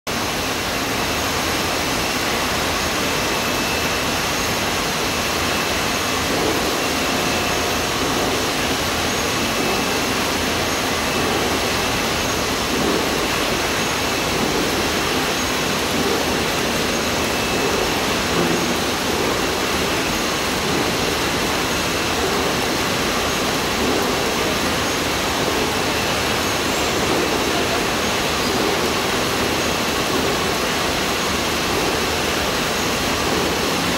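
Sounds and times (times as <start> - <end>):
conveyor mechanical noise: 0.1 - 33.9.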